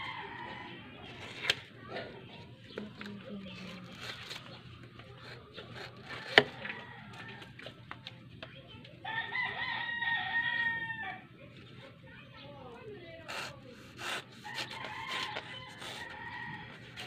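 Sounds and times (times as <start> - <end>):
rooster crowing: 9.1 - 11.2, 14.4 - 17.0.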